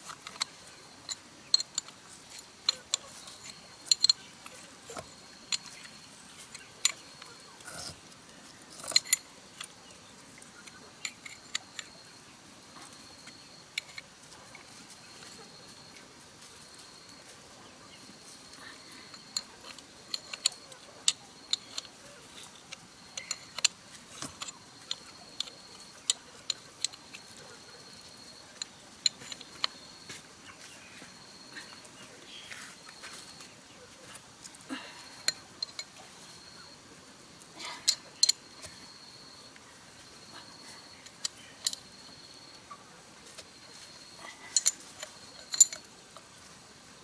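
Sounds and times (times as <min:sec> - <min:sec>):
metal clicks and taps: 0:19.1 - 0:22.0, 0:22.7 - 0:27.4.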